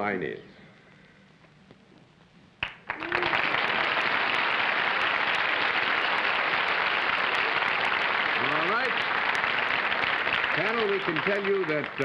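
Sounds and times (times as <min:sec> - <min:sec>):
audience applause: 0:02.6 - 0:12.0.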